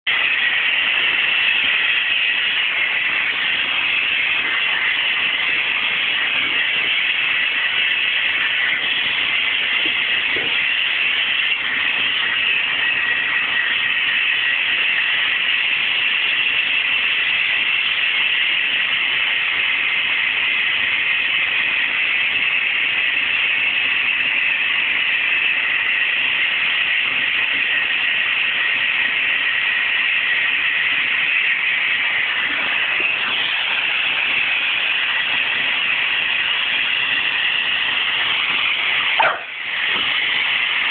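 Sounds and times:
vacuum cleaner running: 0:32.2 - 0:40.9.

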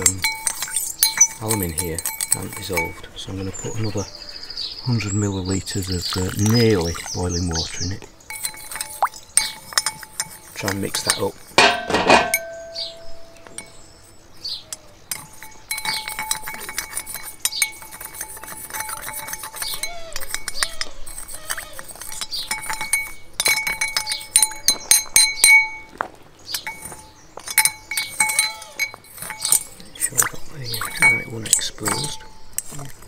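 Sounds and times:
glass bowl ringing: 0:00.0 - 0:03.1, 0:08.3 - 0:14.1, 0:22.5 - 0:26.0, 0:26.6 - 0:29.8, 0:30.8 - 0:32.5
metal spoon clinking against glass: 0:00.0 - 0:03.1, 0:08.3 - 0:13.9, 0:14.7 - 0:25.9, 0:26.6 - 0:32.9.

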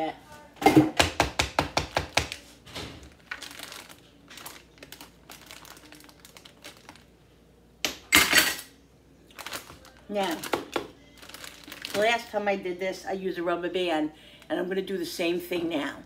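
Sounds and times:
plastic bag crinkling: 0:03.0 - 0:07.2, 0:09.3 - 0:12.4.

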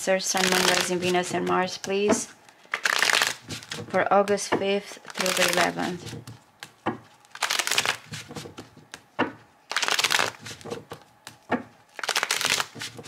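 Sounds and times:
cards shuffling: 0:00.4 - 0:04.0, 0:05.0 - 0:13.0
cards snapping: 0:02.5 - 0:03.8, 0:05.1 - 0:09.1, 0:09.7 - 0:13.0.

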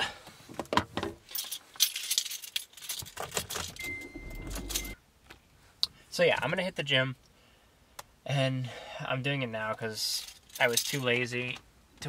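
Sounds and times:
car keys jangling: 0:01.3 - 0:05.0
low hum: 0:03.8 - 0:05.0
steady high tone: 0:03.8 - 0:05.0.

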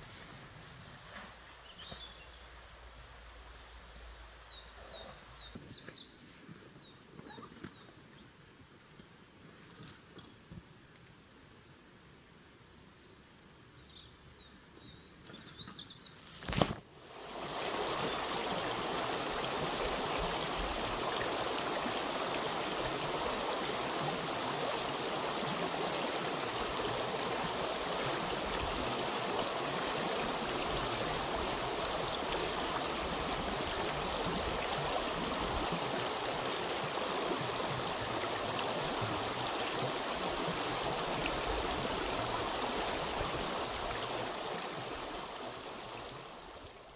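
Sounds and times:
stream water rushing: 0:17.0 - 0:46.9.

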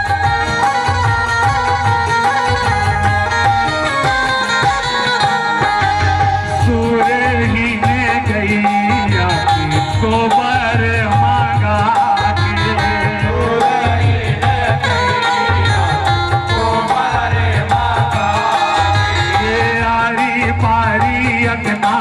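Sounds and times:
hand drum beat: 0:00.0 - 0:22.0
keyboard accompaniment: 0:00.0 - 0:22.0
men singing folk song: 0:06.6 - 0:22.0.

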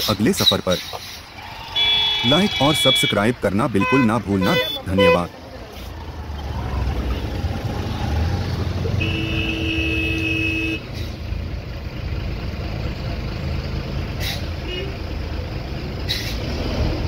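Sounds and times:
vehicle horn: 0:01.8 - 0:05.3, 0:09.0 - 0:10.9
motor scooters passing: 0:05.4 - 0:09.5.

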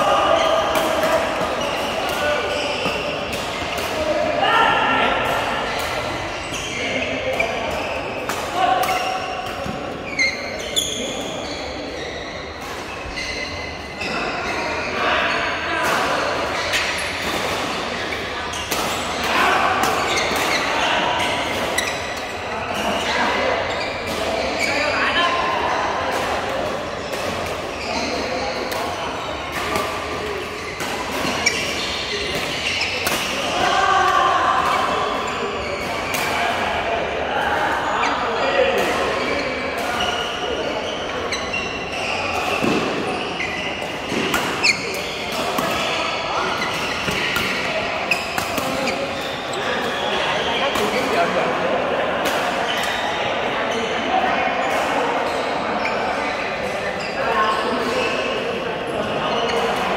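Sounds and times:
shoes squeaking on court: 0:00.3 - 0:03.8, 0:05.5 - 0:08.3, 0:08.9 - 0:15.0, 0:19.9 - 0:25.0, 0:26.6 - 0:33.7, 0:34.5 - 0:36.2, 0:37.9 - 0:51.3, 0:52.6 - 0:59.9.

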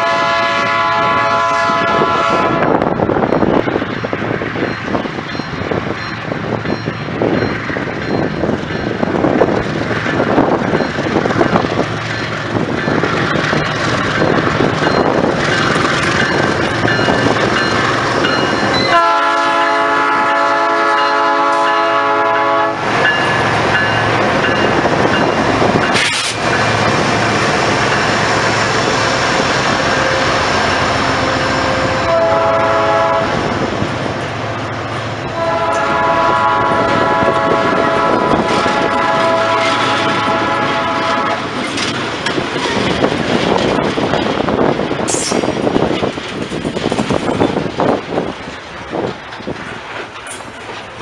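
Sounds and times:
train air horn blasts: 0:00.0 - 0:02.9, 0:18.8 - 0:22.8, 0:31.2 - 0:33.4, 0:35.3 - 0:41.6
locomotive engines and wheels rumbling: 0:00.0 - 0:51.0.

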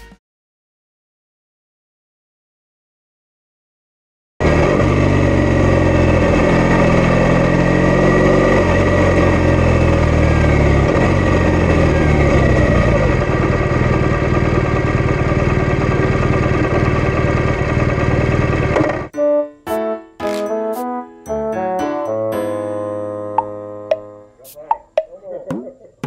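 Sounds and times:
motorcycle engine running: 0:04.4 - 0:19.1.

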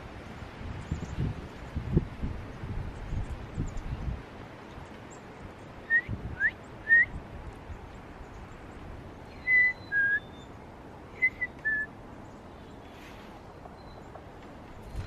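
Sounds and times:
person whistling: 0:05.9 - 0:07.1, 0:09.4 - 0:10.2, 0:11.2 - 0:11.9.

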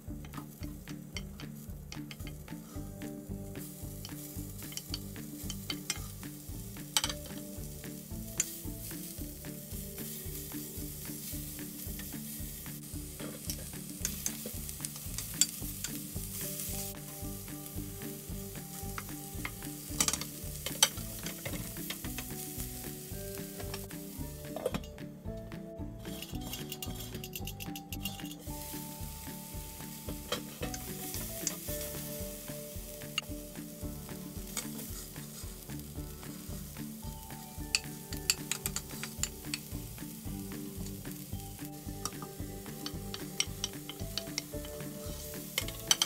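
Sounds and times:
food sizzling in a frying pan: 0:00.1 - 0:24.9, 0:26.0 - 0:46.0
utensil clinking and scraping pan: 0:03.6 - 0:07.6, 0:08.3 - 0:17.2, 0:18.7 - 0:25.0, 0:26.0 - 0:33.3, 0:34.3 - 0:35.6, 0:36.3 - 0:39.9, 0:42.0 - 0:46.0.

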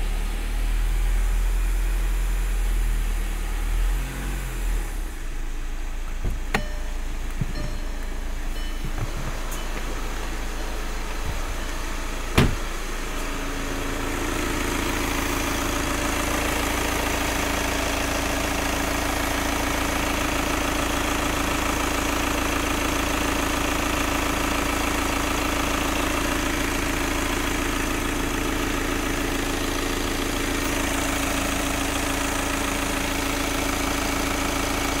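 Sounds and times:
diesel engine idling: 0:00.0 - 0:35.0
loud thump: 0:06.2 - 0:08.0, 0:08.7 - 0:10.0, 0:11.0 - 0:11.6, 0:12.2 - 0:12.8.

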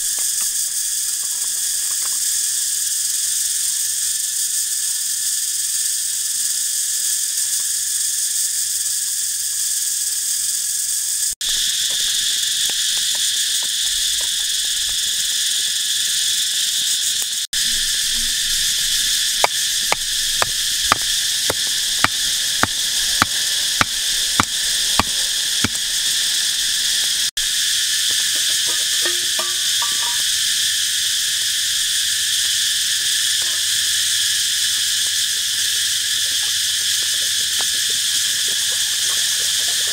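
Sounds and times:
insects chorus: 0:00.0 - 0:39.9
sharp knocks: 0:19.4 - 0:25.9.

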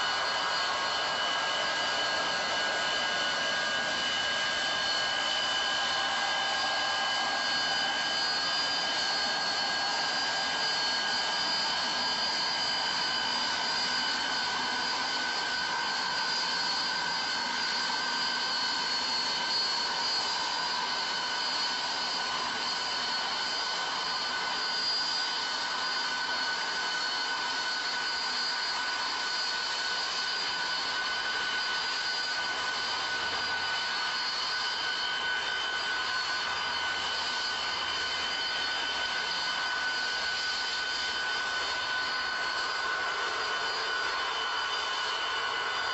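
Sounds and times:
snow blower rushing blast: 0:00.0 - 0:16.0
steady high whine: 0:00.0 - 0:45.9.

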